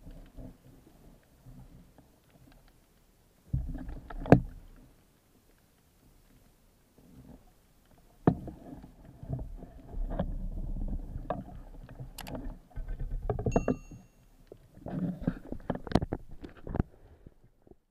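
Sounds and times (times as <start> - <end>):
underwater water sloshing: 0.0 - 17.8
brief high tone: 13.5 - 14.2.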